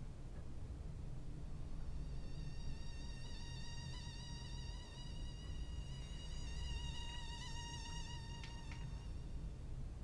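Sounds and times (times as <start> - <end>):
mosquito whine: 1.9 - 9.6.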